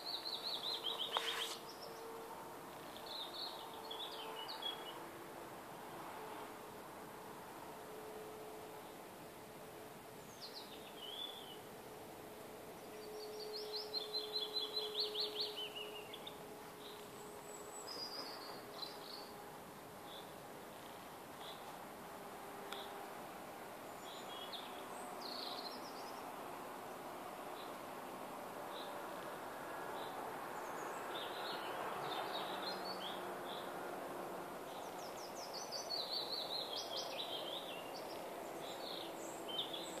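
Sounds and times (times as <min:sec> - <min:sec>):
songbirds singing: 0:00.0 - 0:05.1, 0:10.2 - 0:11.8, 0:12.6 - 0:21.8, 0:22.4 - 0:23.1, 0:23.7 - 0:27.9, 0:29.9 - 0:33.9, 0:34.6 - 0:40.0
steady background hiss: 0:00.0 - 0:40.0.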